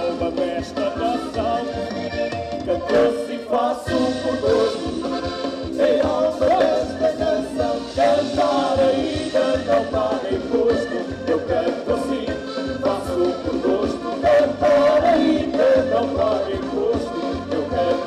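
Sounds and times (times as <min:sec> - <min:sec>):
electric bass: 0:00.0 - 0:03.3, 0:03.9 - 0:18.0
button accordions playing: 0:00.0 - 0:18.0
congas: 0:00.0 - 0:18.0
drum kit: 0:00.0 - 0:18.0.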